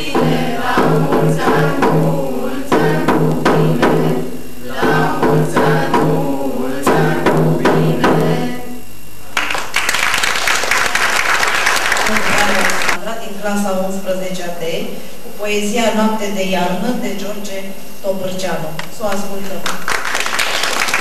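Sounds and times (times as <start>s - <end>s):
hand drum beaten with stick: 0.0s - 8.5s
group singing in unison: 0.0s - 9.0s
audience applause: 9.3s - 13.0s, 19.7s - 21.0s.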